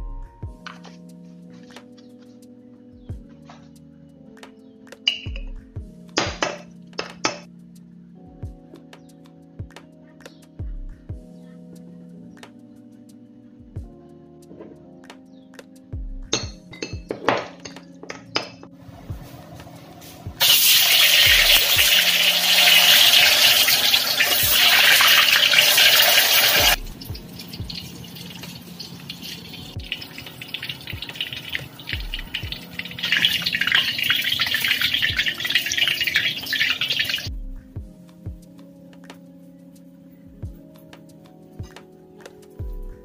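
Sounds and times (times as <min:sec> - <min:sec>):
tofu deep-frying in hot oil: 0:20.4 - 0:37.3.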